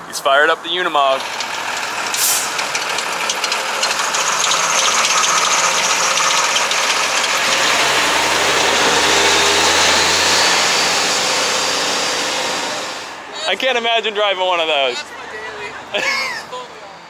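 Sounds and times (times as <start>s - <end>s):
diesel engine running: 0.0s - 13.5s.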